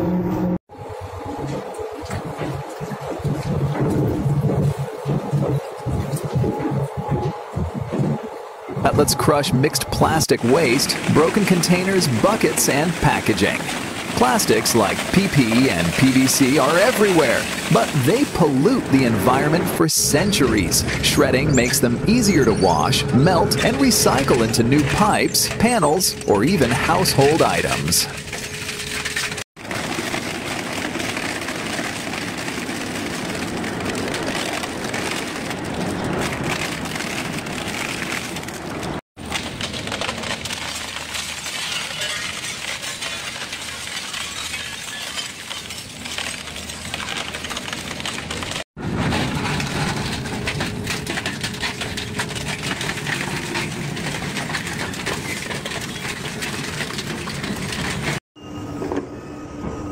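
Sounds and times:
shredder crushing material: 9.1s - 58.2s.

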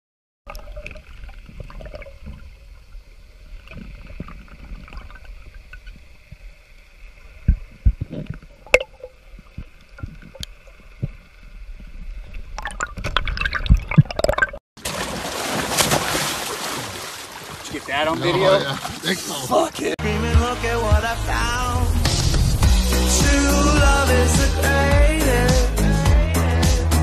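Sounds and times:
underwater rumble: 0.5s - 14.6s, 20.7s - 23.2s
sharp underwater knocks and clicks: 7.4s - 11.2s, 12.6s - 14.6s.

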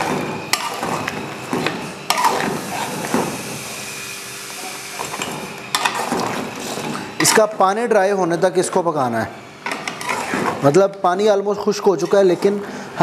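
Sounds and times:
metal spatula scraping pan: 0.5s - 1.1s, 9.8s - 10.7s, 11.8s - 12.6s.

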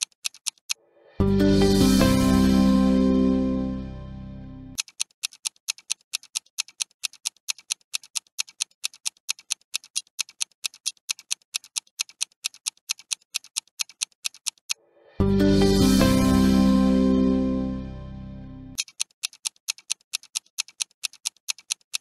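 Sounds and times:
clock ticking: 0.0s - 0.8s, 4.8s - 14.8s, 18.8s - 22.0s
background music: 0.9s - 4.8s, 14.9s - 18.8s.

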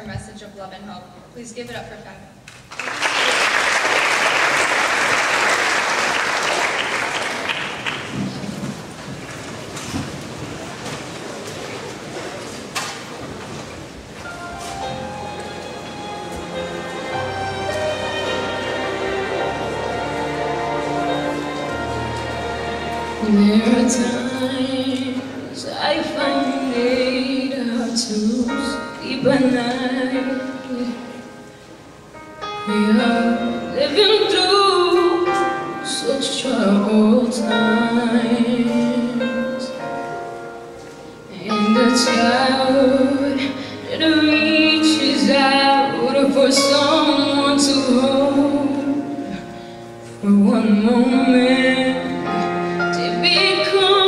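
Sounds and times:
instrumental accompaniment: 13.5s - 54.0s
woman singing into microphone: 23.2s - 31.2s, 32.6s - 39.8s, 41.3s - 49.4s, 50.2s - 54.0s.

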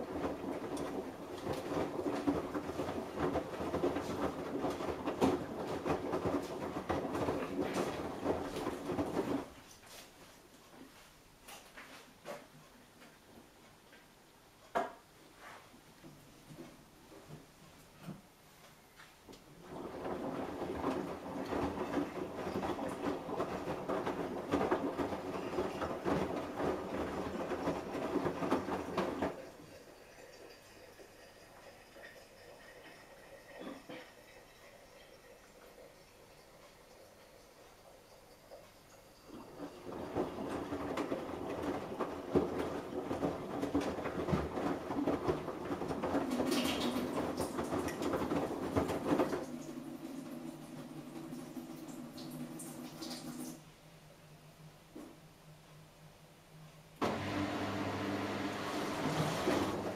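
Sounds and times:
washing machine laundry sloshing: 0.0s - 9.7s, 19.6s - 30.3s, 39.2s - 53.6s, 57.0s - 59.9s.

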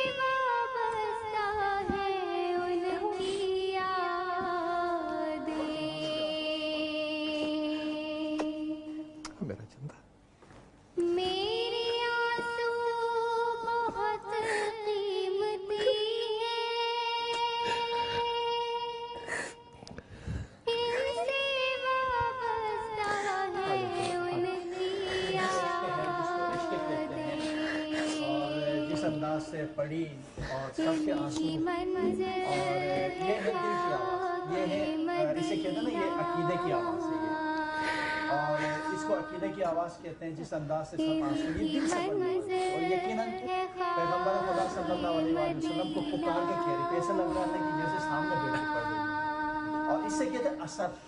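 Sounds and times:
person singing a long note: 1.9s - 9.2s, 20.7s - 29.9s, 30.8s - 39.9s, 41.0s - 50.7s.

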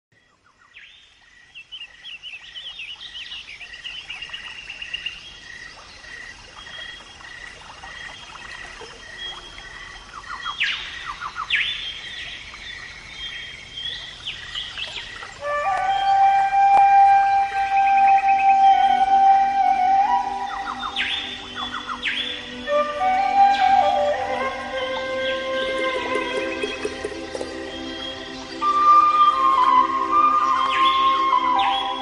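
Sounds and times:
birds chirping and trilling: 0.2s - 32.0s
flute-like melody: 15.4s - 32.0s.

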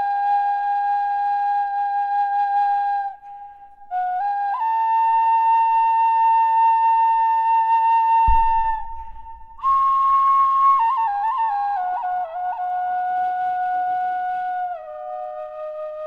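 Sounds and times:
flute playing slow melody: 0.0s - 16.0s
soft low tone: 8.3s - 10.2s.

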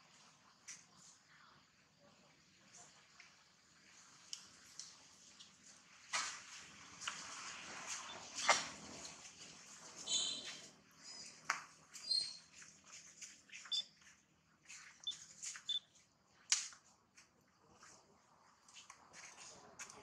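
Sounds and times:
short high chirps: 15.0s - 15.8s.

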